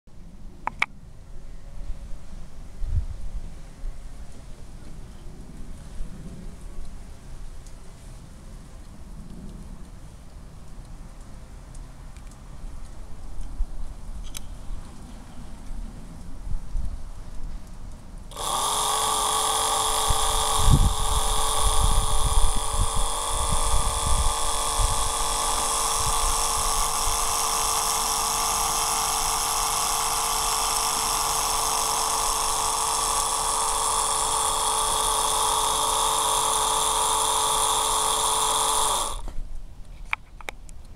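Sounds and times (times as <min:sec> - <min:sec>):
electric motor whining: 0:18.3 - 0:39.3.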